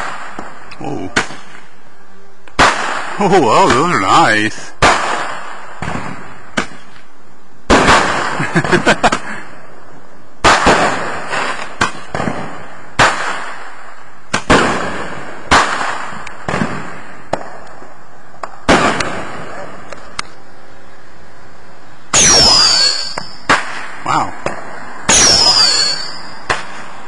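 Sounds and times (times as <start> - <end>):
fireworks bangs: 7.7 - 9.2, 10.4 - 13.7, 14.3 - 17.6, 18.6 - 19.5
small firework pops: 15.5 - 17.8.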